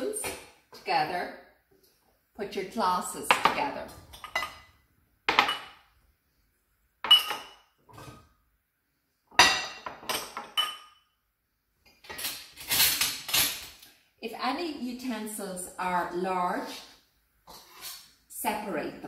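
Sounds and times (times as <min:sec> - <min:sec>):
drinking glasses clinking: 0:07.1 - 0:07.6.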